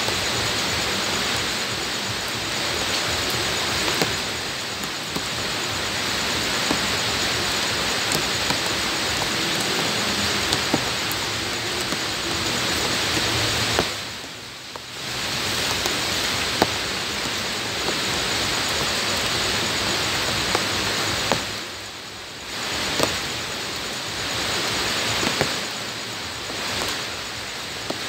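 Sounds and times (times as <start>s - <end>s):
rain falling on wet ground: 0.0s - 28.0s
drops splashing: 2.8s - 21.6s.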